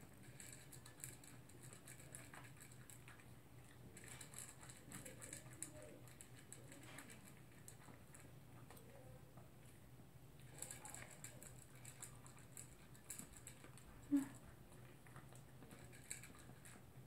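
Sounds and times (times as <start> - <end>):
kibble clicking against bowl: 0.1 - 9.4, 10.4 - 17.0
dog crunching dry kibble: 10.4 - 17.0.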